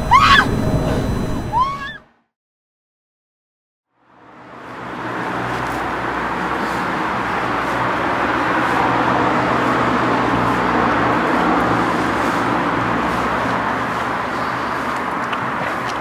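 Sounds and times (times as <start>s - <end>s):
car engine and tyre noise: 0.0s - 1.7s, 4.0s - 16.0s.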